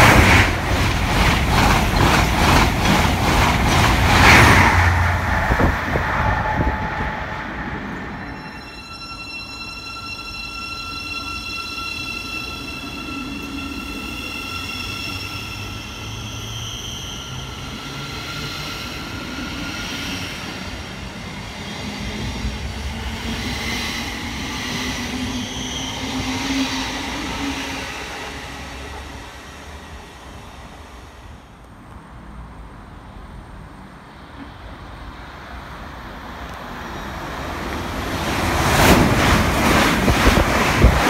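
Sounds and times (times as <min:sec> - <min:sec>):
electric train whining: 0:00.0 - 0:31.6
low train hum: 0:00.0 - 0:41.0.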